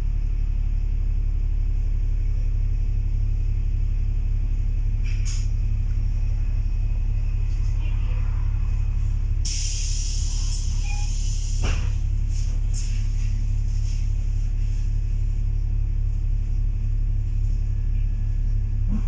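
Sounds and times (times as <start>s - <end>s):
bus diesel engine rumble: 0.0s - 19.0s
short hiss: 9.4s - 11.6s.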